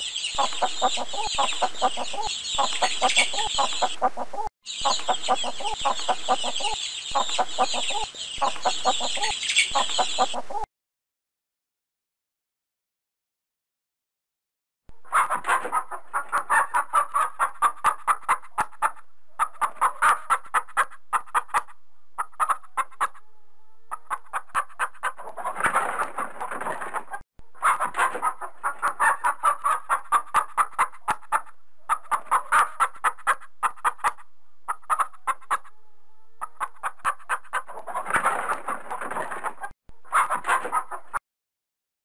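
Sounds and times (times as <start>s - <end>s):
chicken clucking: 0.0s - 10.7s, 15.0s - 41.2s.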